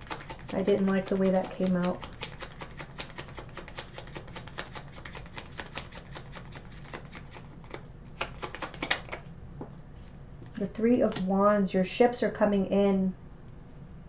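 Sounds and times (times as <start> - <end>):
cards shuffling: 0.0 - 9.3.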